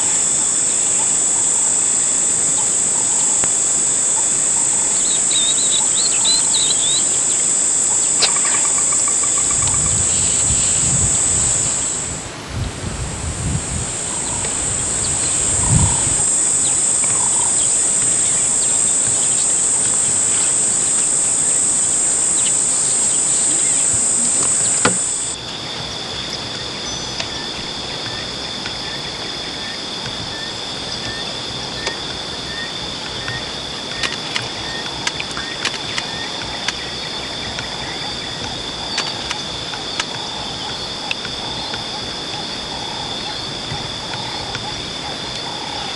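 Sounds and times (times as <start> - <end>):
small chirp: 0.0 - 12.2
high-pitched insect drone: 0.0 - 45.9
low insect trill: 0.0 - 45.9.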